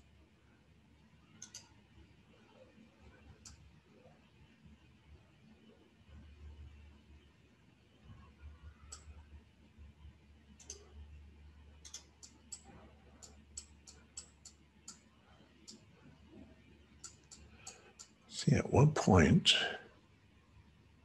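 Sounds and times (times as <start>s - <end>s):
faint room hum: 0.0s - 21.0s
computer mouse clicking: 1.3s - 1.8s, 3.3s - 3.7s, 8.6s - 9.2s, 10.5s - 11.0s, 11.7s - 16.4s, 17.0s - 18.2s.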